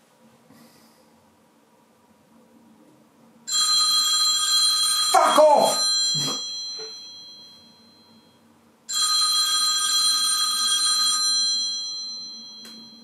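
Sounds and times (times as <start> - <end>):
telephone ringing: 3.5 - 13.0.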